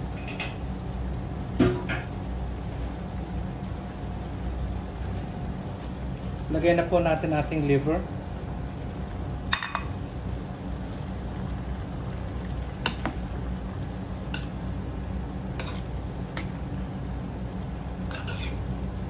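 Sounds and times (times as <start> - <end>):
food simmering in a wok: 0.0 - 19.0
metal spoon clinking on pan: 15.6 - 15.8.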